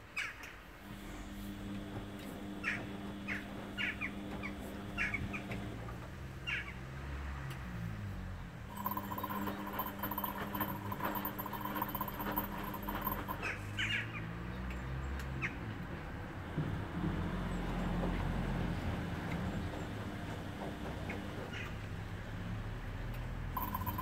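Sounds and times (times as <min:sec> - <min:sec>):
washing machine drum motor humming: 0:00.9 - 0:05.9, 0:08.7 - 0:13.6, 0:18.3 - 0:21.6, 0:23.6 - 0:24.0.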